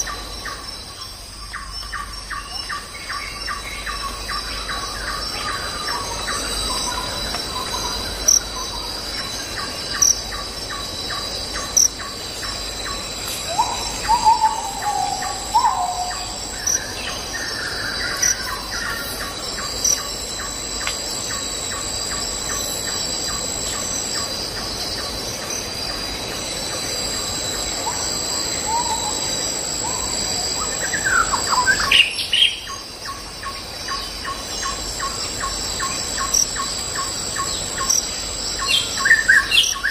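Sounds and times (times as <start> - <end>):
high insect trill: 0.0 - 39.9
regular insect chirping: 0.0 - 39.9
bird calls: 1.4 - 20.6.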